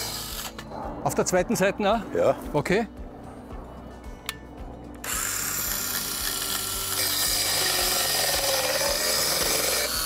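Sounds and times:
circular saw cutting wood: 0.0s - 0.7s, 5.0s - 10.0s.

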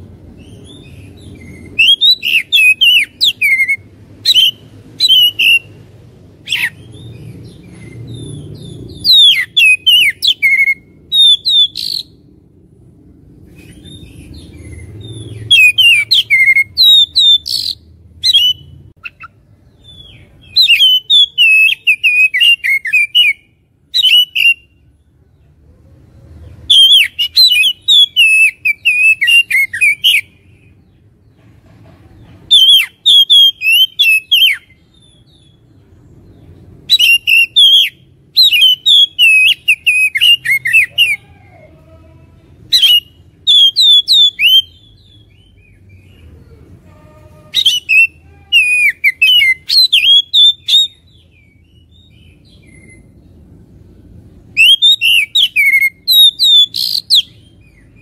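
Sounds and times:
bird singing rapid high notes: 0.4s - 5.8s, 13.7s - 24.8s, 47.0s - 53.2s, 54.5s - 58.0s.

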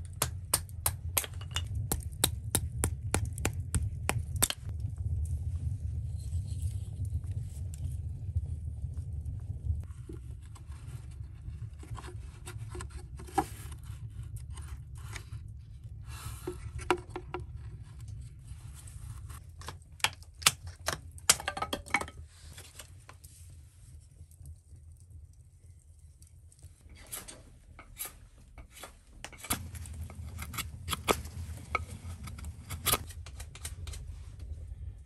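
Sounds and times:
wooden sticks cracking and snapping: 0.0s - 4.7s, 19.5s - 21.6s.

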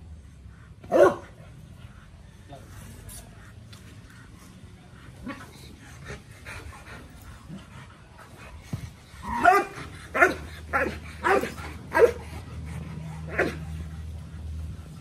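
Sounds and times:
dog barking: 0.9s - 1.3s, 9.3s - 12.2s.

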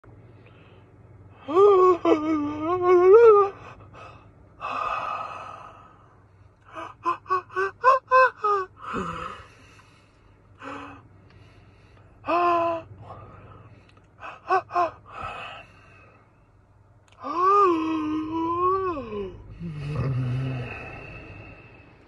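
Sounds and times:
breathy gasp: 8.8s - 12.1s.

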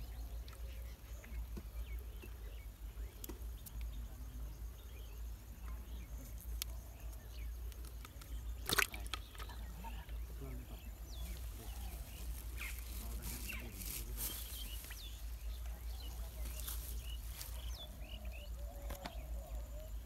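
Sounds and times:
fish splashing into bucket: 8.6s - 9.6s
wet fish handling squishes: 8.6s - 9.6s.

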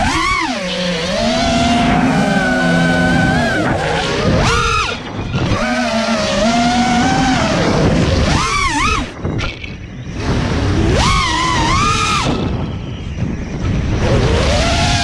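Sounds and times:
drone motors whining: 0.0s - 15.0s.

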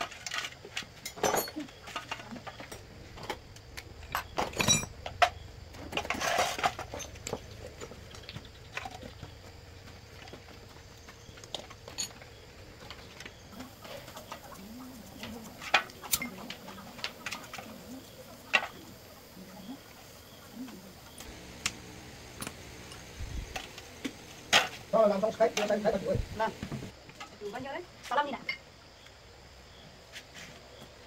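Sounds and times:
hand tools clinking on metal: 0.2s - 2.9s, 4.1s - 5.4s, 11.5s - 12.4s, 15.2s - 18.8s.

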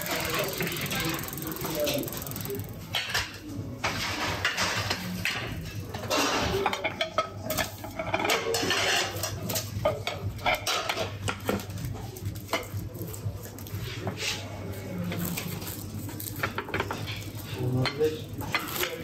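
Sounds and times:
scraping of utensils: 0.0s - 19.0s
utensils and dishes clattering: 0.0s - 19.0s.

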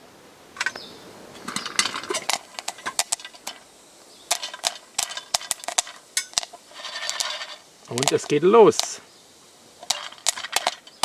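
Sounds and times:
popcorn popping: 1.5s - 3.6s, 4.3s - 9.0s, 9.8s - 11.0s.

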